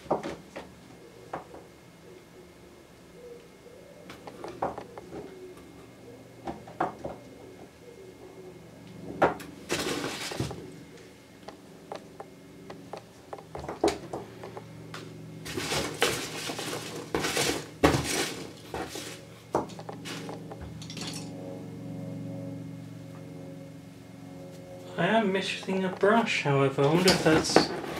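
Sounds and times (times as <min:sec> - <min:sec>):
rustling and squeaking foam: 0:09.7 - 0:10.6, 0:15.5 - 0:19.3.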